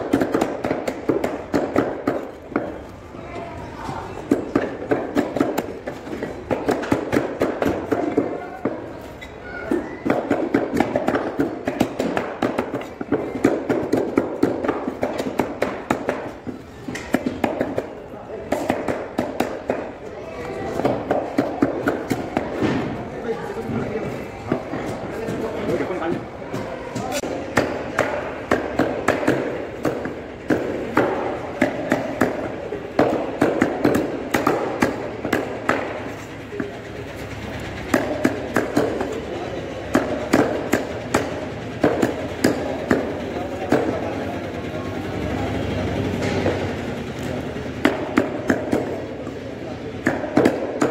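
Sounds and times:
cleavers chopping on wood: 0:00.0 - 0:02.8, 0:04.3 - 0:08.9, 0:09.7 - 0:17.9, 0:18.5 - 0:20.0, 0:20.7 - 0:22.9, 0:24.5 - 0:36.1, 0:37.9 - 0:39.2, 0:39.9 - 0:44.1, 0:47.8 - 0:49.0, 0:50.0 - 0:50.9.

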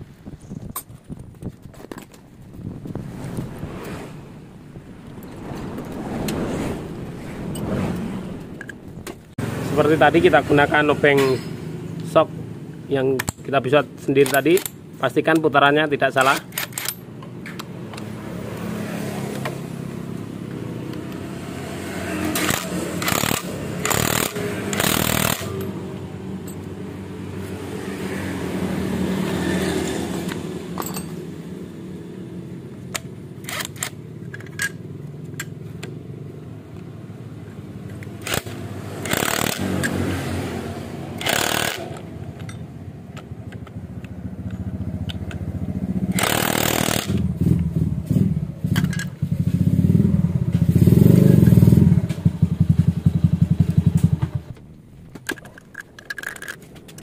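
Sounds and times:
cordless driver running: 0:22.3 - 0:25.6, 0:38.2 - 0:40.0, 0:41.2 - 0:42.1, 0:46.1 - 0:47.2
motorcycle engine running: 0:43.3 - 0:54.6.

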